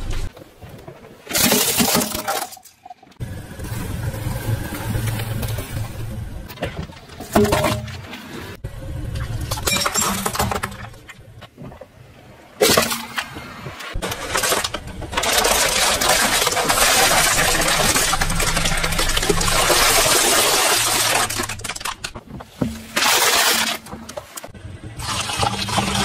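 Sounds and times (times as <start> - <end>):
tyre crushing plastic bottles: 1.2 - 2.9, 6.5 - 8.2, 14.0 - 26.0
foil packet crunching: 14.0 - 22.2, 22.9 - 23.9.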